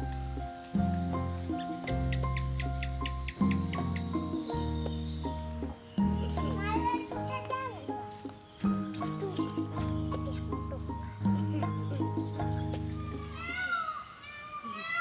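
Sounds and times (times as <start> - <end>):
soft background music: 0.0 - 13.7
insects chirring: 0.0 - 15.0.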